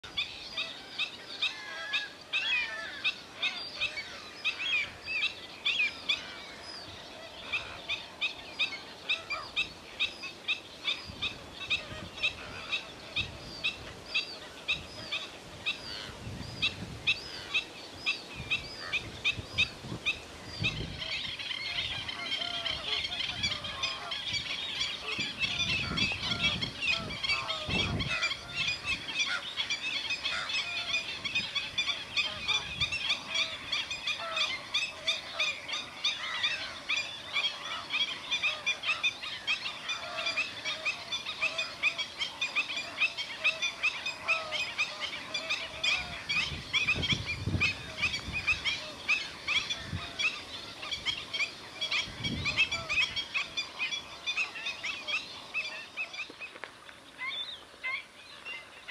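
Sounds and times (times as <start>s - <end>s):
flamingo flock honking: 21.0s - 55.9s.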